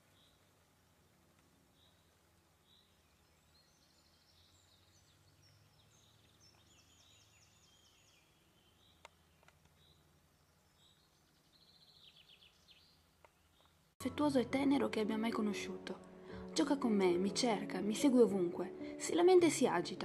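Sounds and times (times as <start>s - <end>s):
distant bird chirps: 1.4s - 14.0s.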